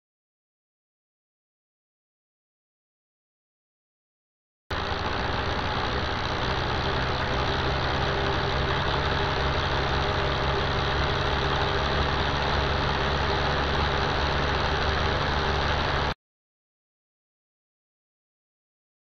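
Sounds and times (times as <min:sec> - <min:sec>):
power saw running: 0:04.7 - 0:16.2.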